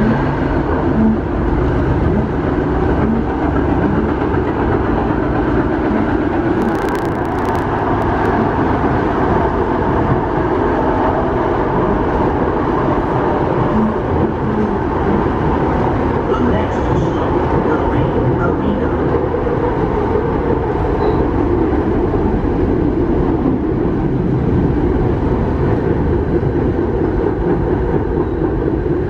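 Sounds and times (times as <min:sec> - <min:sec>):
tram wheels rumbling on rails: 0:00.0 - 0:29.0
sharp clicks: 0:06.6 - 0:08.4.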